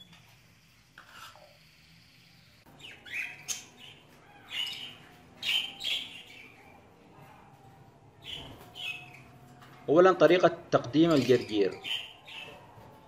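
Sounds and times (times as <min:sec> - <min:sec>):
budgerigars chirping: 0:02.7 - 0:06.7, 0:11.0 - 0:12.6.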